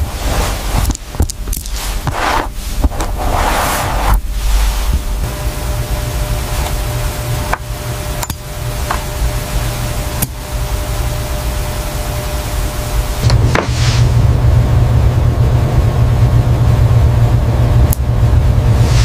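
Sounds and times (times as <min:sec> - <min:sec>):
low rumble and hiss: 0:00.0 - 0:19.0
brief rush of noise: 0:02.1 - 0:05.2.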